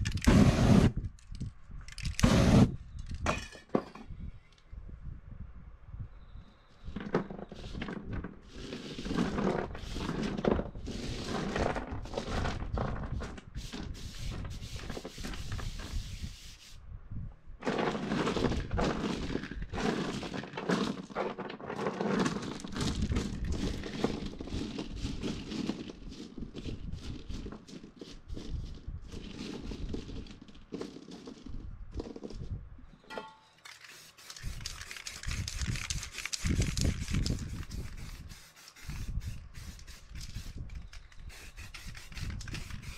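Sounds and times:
small stones clattering on a board: 0:17.6 - 0:37.6.

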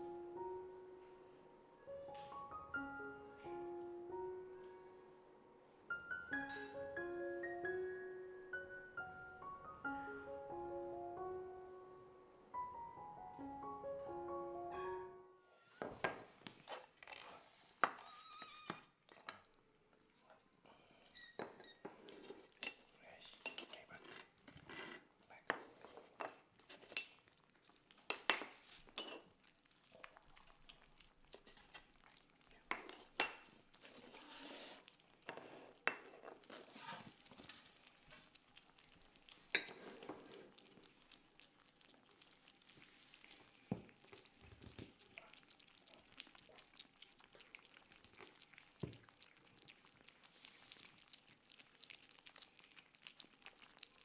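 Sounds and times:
kittens eating: 0:16.4 - 0:54.0.

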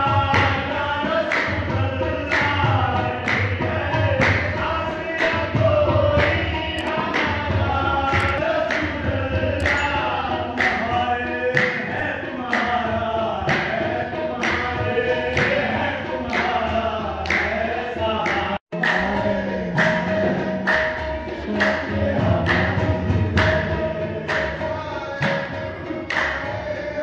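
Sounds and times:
group of voices singing: 0:00.0 - 0:27.0
sharp percussive beat: 0:00.0 - 0:27.0.

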